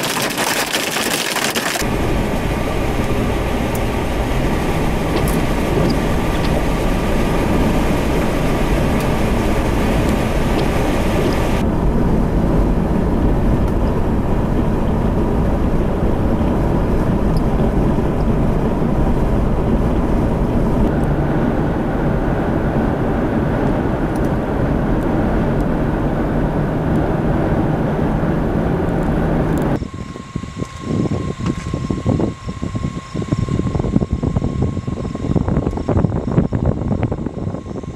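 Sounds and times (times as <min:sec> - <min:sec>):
rain hitting windshield: 0:00.0 - 0:11.6
engine and tyre rumble: 0:00.0 - 0:37.9.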